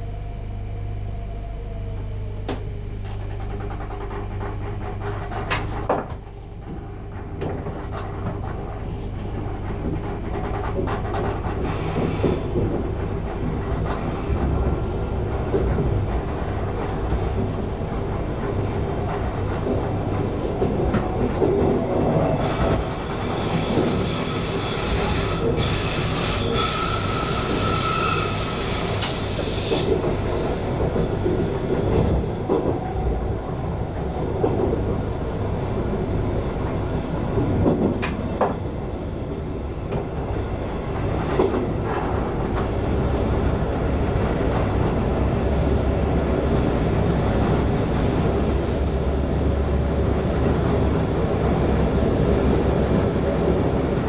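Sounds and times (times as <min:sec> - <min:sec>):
train running on rails: 0:00.0 - 0:54.0
train wheels squealing: 0:20.6 - 0:32.9, 0:37.3 - 0:51.6.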